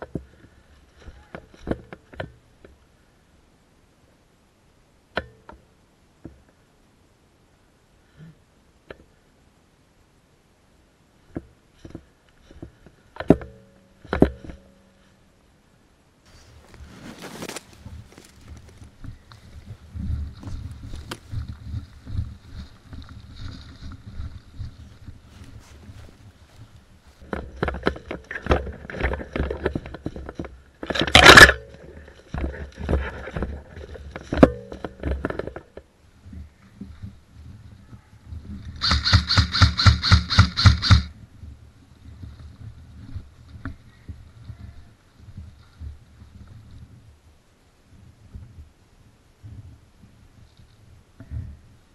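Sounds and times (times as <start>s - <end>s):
rustling through brush and leaves: 16.2s - 48.6s
footsteps crunching through dry leaves: 16.3s - 27.2s
loud rustling: 16.3s - 27.2s
branches scraping: 16.3s - 35.6s.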